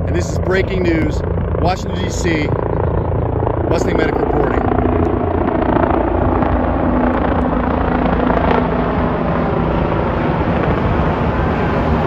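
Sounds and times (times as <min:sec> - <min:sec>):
helicopter rotor chop: 0:00.0 - 0:12.0
low engine drone: 0:00.0 - 0:12.0.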